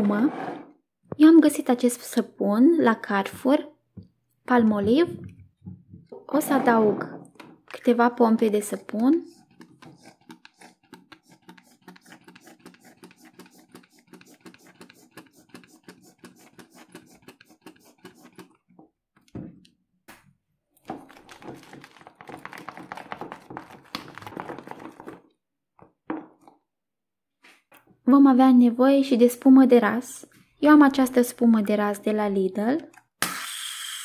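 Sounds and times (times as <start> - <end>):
wet squishing and scraping: 8.5 - 18.7
soap pump clicks and squirts: 9.0 - 18.5.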